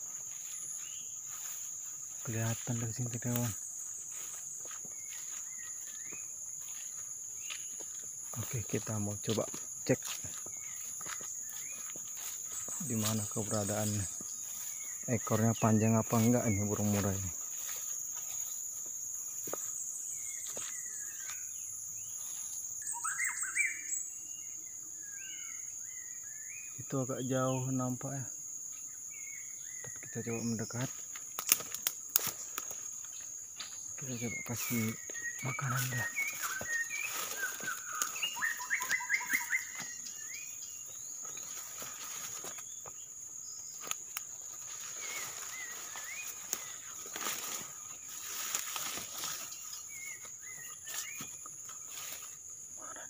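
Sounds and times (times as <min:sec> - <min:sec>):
insects droning: 0:00.0 - 0:53.0
bird singing whistled phrases: 0:22.8 - 0:24.0, 0:37.7 - 0:40.5
bird singing whistled notes: 0:22.8 - 0:26.7, 0:34.1 - 0:41.4.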